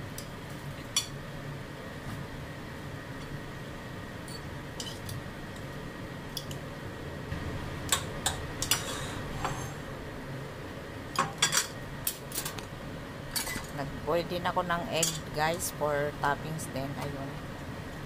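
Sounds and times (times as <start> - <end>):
metal utensils scraping ceramic plate: 8.7 - 9.8.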